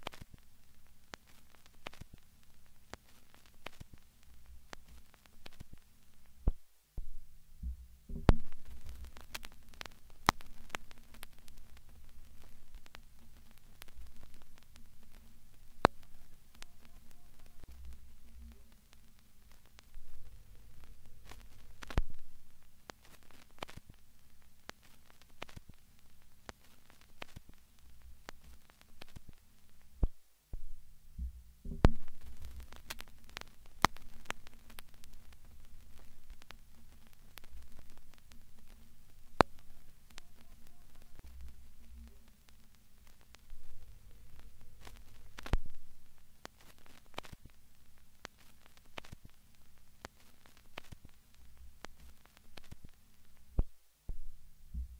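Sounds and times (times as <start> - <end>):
crackles and pops: 0.0 - 54.9
low electrical hum: 0.0 - 54.9
low thuds: 6.5 - 8.9.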